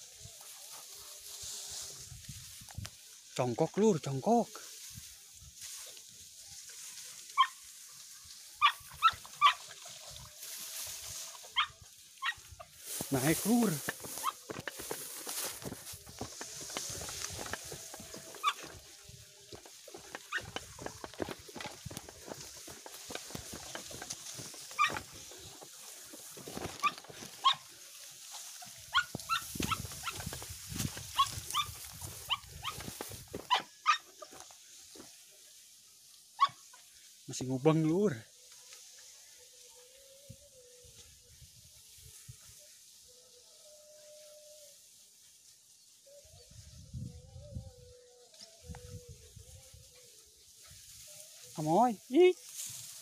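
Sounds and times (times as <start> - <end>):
footfalls through vegetation: 0.0 - 36.3, 48.3 - 53.0
rustling through vegetation: 0.0 - 53.0
dogs yelping: 7.4 - 7.6, 8.6 - 9.8, 11.4 - 12.7, 14.0 - 15.0, 17.0 - 18.8, 20.0 - 21.4, 22.6 - 25.4, 26.6 - 27.7, 28.8 - 30.4, 31.0 - 34.3, 36.4 - 36.7.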